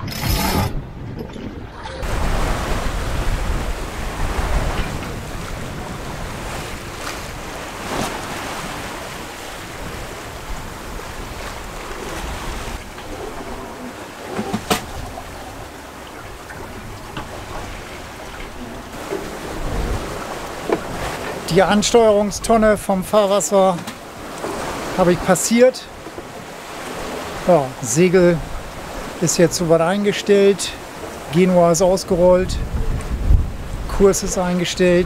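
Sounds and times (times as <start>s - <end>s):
wind buffeting microphone: 0.0s - 22.9s, 32.1s - 35.0s
water rushing past hull: 0.0s - 35.0s.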